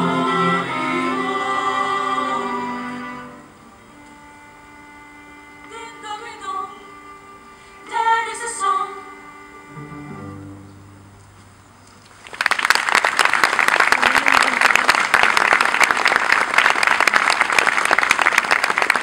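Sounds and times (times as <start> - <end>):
cello and double bass low note: 8.9 - 11.8
audience applause: 12.2 - 19.0.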